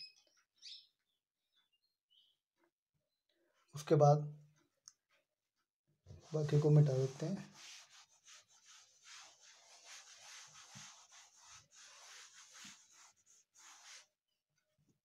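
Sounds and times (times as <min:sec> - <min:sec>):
rubbing strokes on chalkboard: 0:06.2 - 0:14.1.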